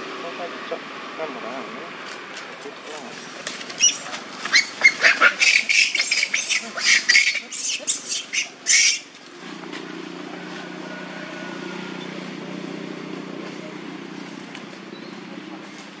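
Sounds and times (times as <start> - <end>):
monkeys shrieking: 3.1 - 9.2.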